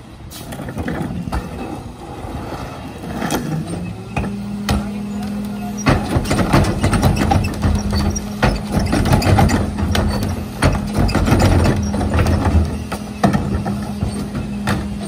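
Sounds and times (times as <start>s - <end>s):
garbage truck hydraulics humming: 0.0s - 15.0s
cart clanks and knocks: 3.0s - 15.0s.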